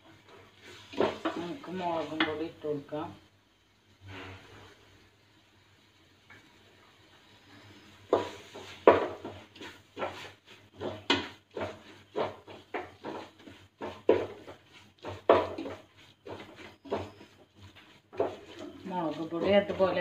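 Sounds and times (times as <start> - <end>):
spoon scraping a metal pot: 8.1 - 20.0.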